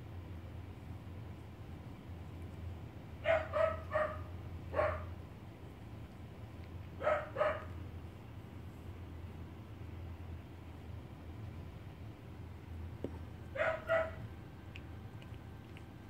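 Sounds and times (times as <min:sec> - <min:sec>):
puppies yipping: 0:03.2 - 0:05.0, 0:07.0 - 0:07.8, 0:13.6 - 0:14.2.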